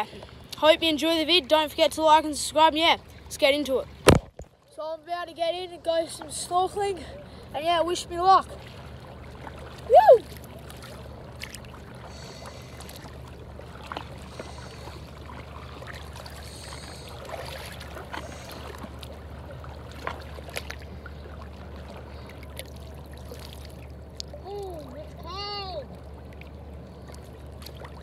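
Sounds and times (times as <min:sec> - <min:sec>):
steady low rumble: 0:00.0 - 0:28.0
water lapping around rocks: 0:00.0 - 0:28.0
small splashes: 0:08.4 - 0:25.2, 0:25.8 - 0:28.0.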